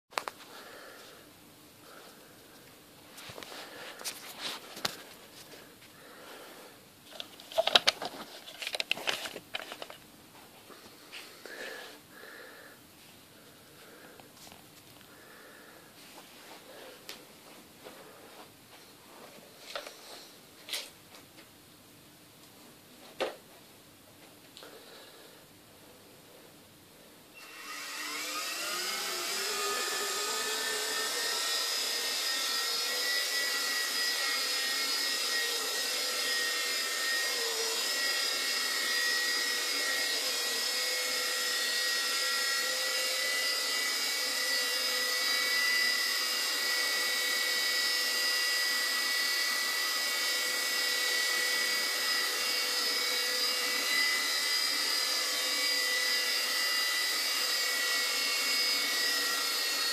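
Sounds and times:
toy helicopter rotors whining: 27.4s - 59.9s.

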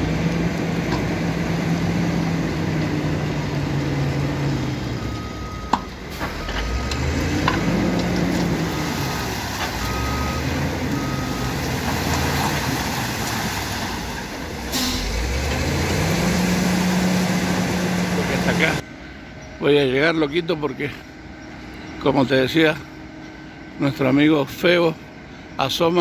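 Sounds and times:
diesel truck engine revving: 0.0s - 18.8s.

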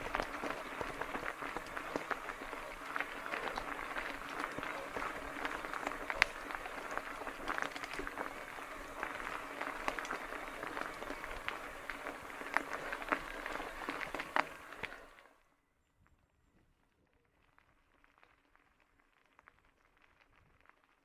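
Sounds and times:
bike tyres crunching on gravel: 0.0s - 15.3s.

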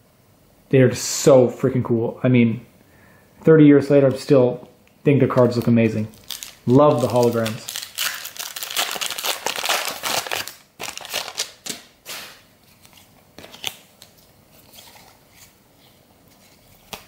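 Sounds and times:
foil wrapper tearing and crinkling: 5.4s - 12.4s
cards clicking and rustling: 16.3s - 17.0s.

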